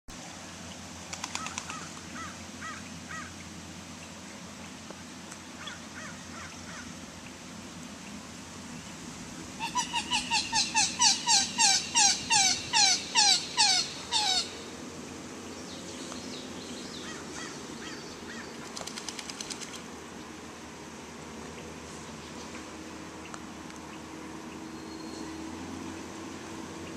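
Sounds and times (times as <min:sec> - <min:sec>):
waterfowl calls: 0:09.6 - 0:14.6.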